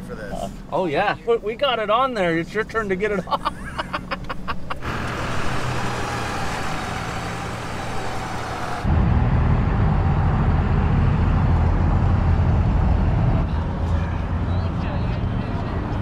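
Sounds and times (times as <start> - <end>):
heavy vehicle engine running: 4.6 - 16.0.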